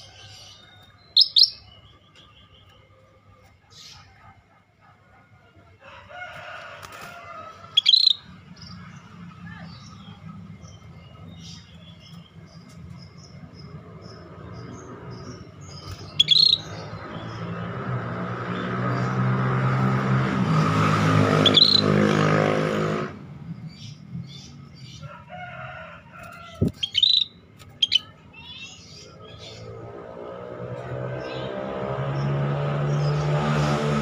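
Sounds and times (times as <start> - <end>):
bird chirping sharply: 0.5 - 2.8, 7.8 - 8.3, 14.6 - 17.5, 21.3 - 22.0, 26.6 - 29.7.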